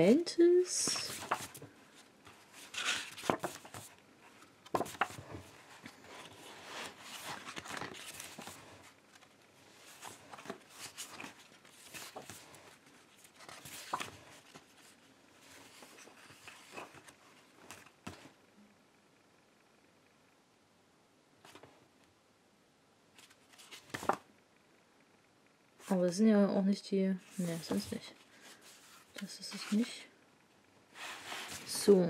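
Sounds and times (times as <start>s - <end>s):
book pages turning: 0.9s - 18.3s, 23.2s - 24.3s, 27.3s - 29.9s, 31.0s - 32.0s.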